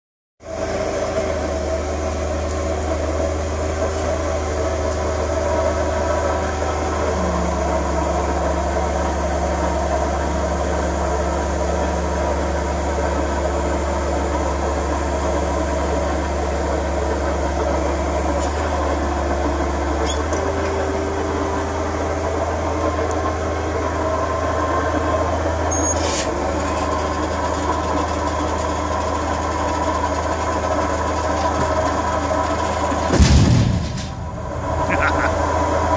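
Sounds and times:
forklift humming: 0.4s - 35.9s.

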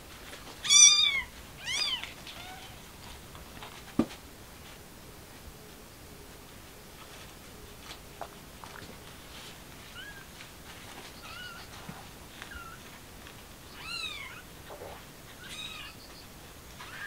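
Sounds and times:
kittens mewing: 13.8s - 16.0s.

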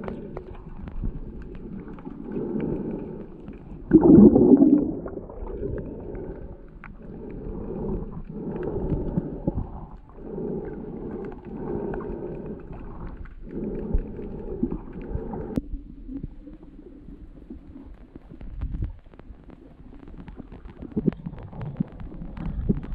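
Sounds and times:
underwater rumble and sloshing: 0.0s - 22.9s.

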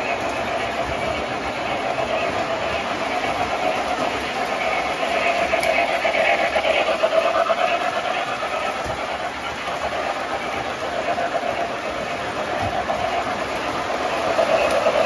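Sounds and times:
model train rolling on track: 0.0s - 15.0s.

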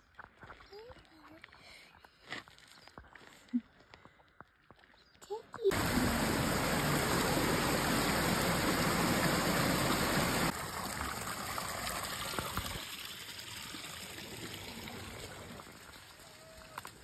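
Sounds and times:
mountain stream rushing: 5.7s - 17.0s.

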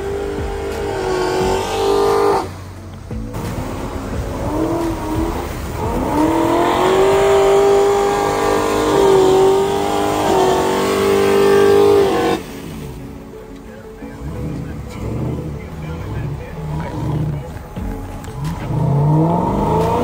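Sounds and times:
car engine revving: 0.0s - 20.0s
tyres spinning in snow: 0.0s - 20.0s.

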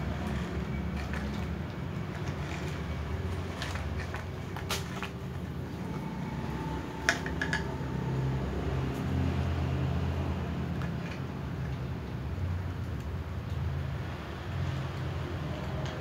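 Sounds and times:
cats eating from glass bowls: 0.0s - 8.0s
low mechanical hum: 0.0s - 16.0s.

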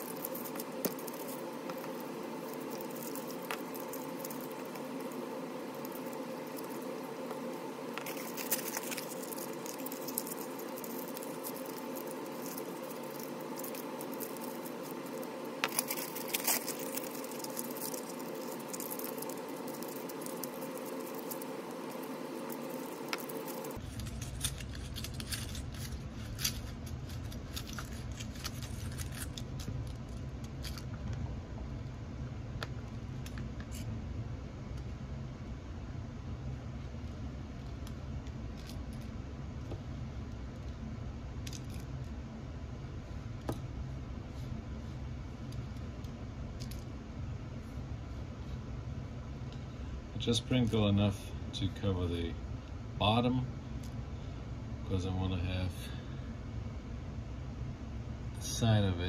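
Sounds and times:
foil crinkling and crackling: 0.0s - 30.9s
steady background hum: 0.0s - 59.0s.

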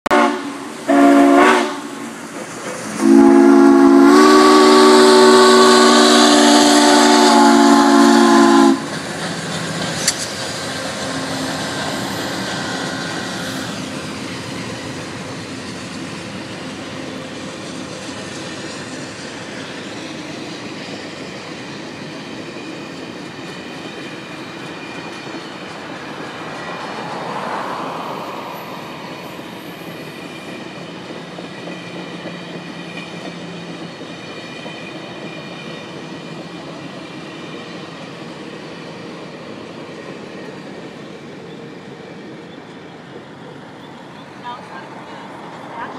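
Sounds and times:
steam locomotive whistle blast: 0.1s - 2.2s, 3.0s - 8.9s
train cars rumbling on rails: 0.1s - 45.9s.

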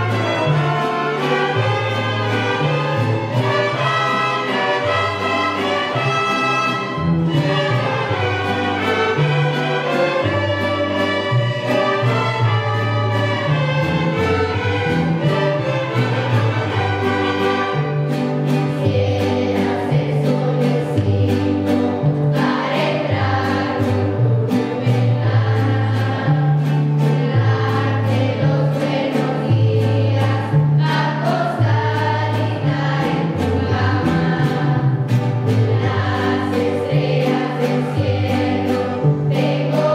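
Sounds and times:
people singing together: 0.0s - 39.9s
strummed guitars: 0.0s - 39.9s
violins: 0.0s - 39.9s.

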